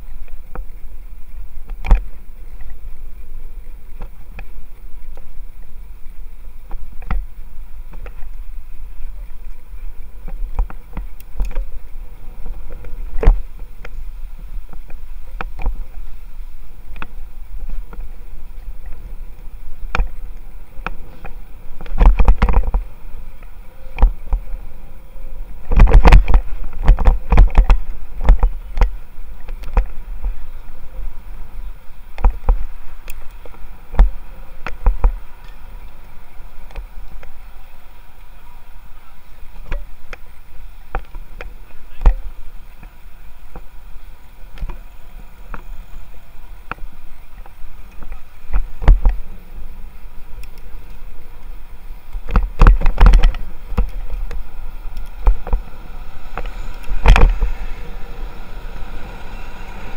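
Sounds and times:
wind and road rumble: 0.0s - 59.9s
bicycle knocks and rattles: 16.8s - 24.8s, 25.6s - 30.4s, 52.2s - 57.6s.

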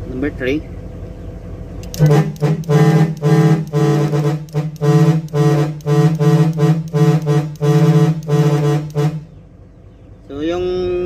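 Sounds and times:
rapid short vehicle horn blasts: 1.9s - 9.3s.

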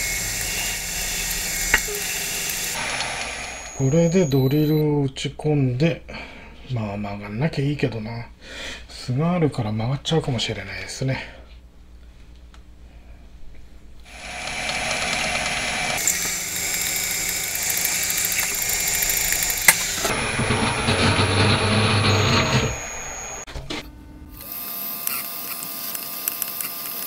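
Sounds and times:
drill whining cutting aluminium: 0.0s - 4.5s, 14.1s - 23.5s.

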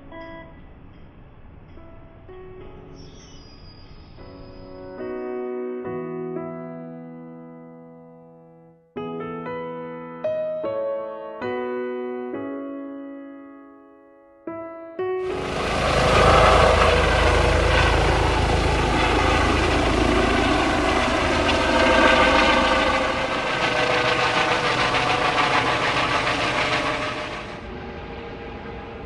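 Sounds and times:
helicopter rotor and engine: 15.2s - 29.0s.

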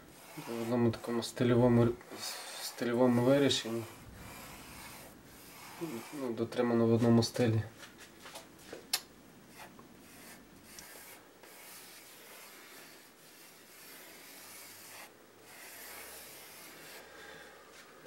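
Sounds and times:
pencil scratching on paper: 0.1s - 6.4s, 9.5s - 17.1s.

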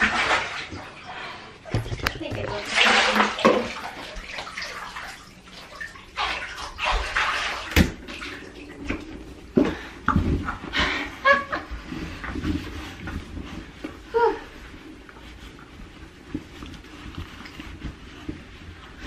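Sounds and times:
shower water splashing in bathtub: 0.0s - 19.0s
sharp knocks and thumps: 1.7s - 2.6s.

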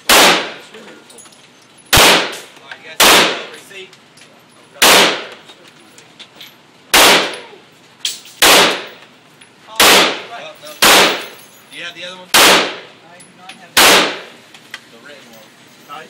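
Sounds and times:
pistol shots echoing indoors: 0.0s - 0.6s, 1.9s - 3.5s, 7.0s - 7.4s, 8.4s - 8.9s, 9.8s - 11.3s, 12.4s - 12.9s, 13.8s - 14.3s.

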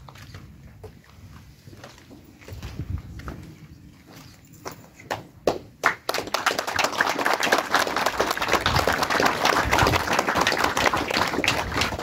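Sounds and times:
people clapping: 5.4s - 12.0s.

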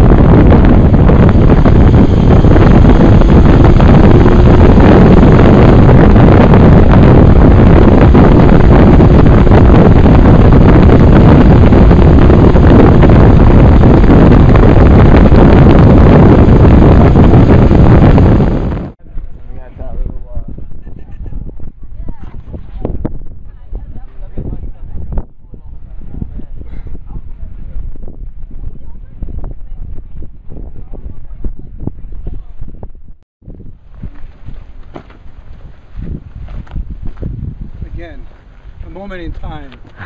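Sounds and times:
motorcycle running: 0.0s - 18.9s
road noise: 0.0s - 19.8s
wind noise on microphone: 0.0s - 40.0s.

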